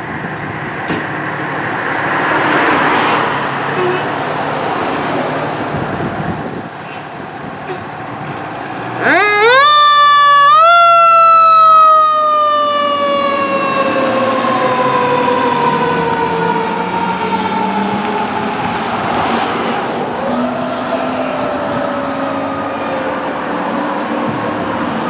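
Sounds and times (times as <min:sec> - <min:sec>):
fire engine siren: 0:08.8 - 0:25.0.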